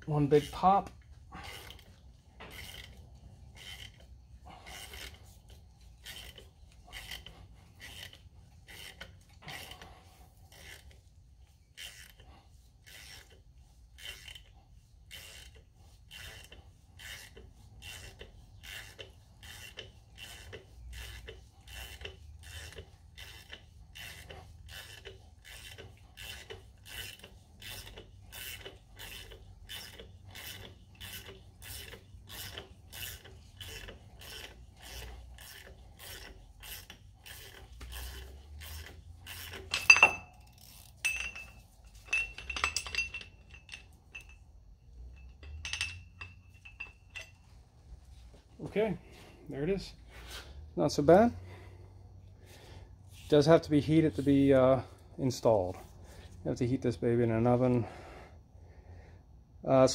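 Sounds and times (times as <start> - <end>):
ratchet wrench clicking: 2.5 - 3.0, 3.6 - 4.1, 12.8 - 13.4, 14.0 - 14.5, 15.1 - 44.4.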